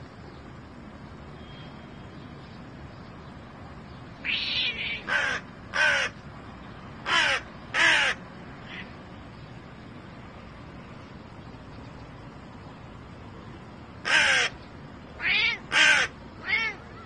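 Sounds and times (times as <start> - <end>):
crow cawing: 4.2 - 6.2, 7.0 - 8.9, 14.0 - 14.6, 15.2 - 17.0.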